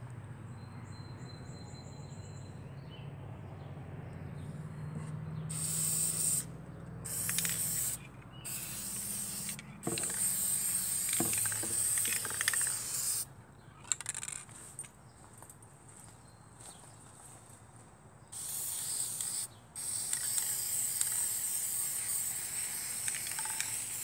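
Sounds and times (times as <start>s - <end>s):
spray paint can spraying: 5.5s - 13.3s, 18.4s - 24.0s.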